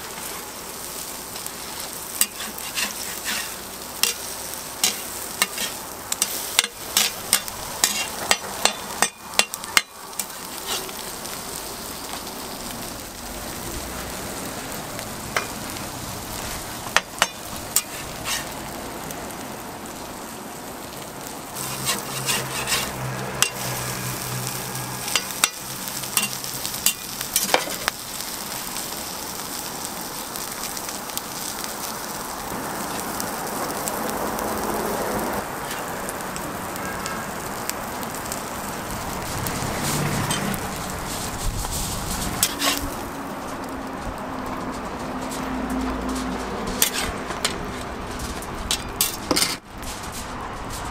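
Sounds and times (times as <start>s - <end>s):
food sizzling on a griddle: 0.0s - 50.9s
metal spatula scraping griddle: 0.1s - 12.2s, 16.3s - 18.6s, 21.6s - 28.4s, 35.6s - 36.0s, 39.2s - 43.6s, 44.4s - 50.9s.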